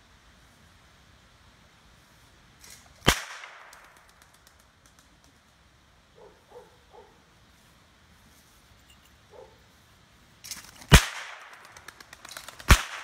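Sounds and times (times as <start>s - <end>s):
soft rustle: 4.0s - 10.9s.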